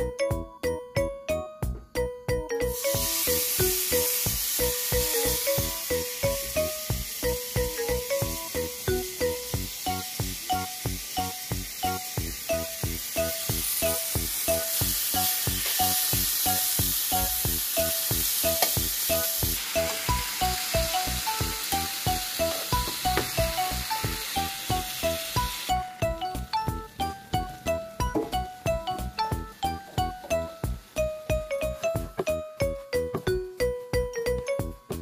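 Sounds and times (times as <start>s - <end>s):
background music with beat: 0.0s - 35.0s
food sizzling in a pan: 2.7s - 26.0s.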